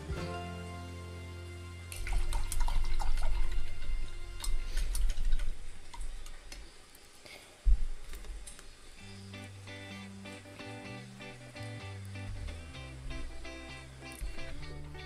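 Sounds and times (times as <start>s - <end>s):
soft background music: 0.0s - 5.6s, 9.0s - 15.0s
paintbrush splashing in metal cup: 1.9s - 3.8s.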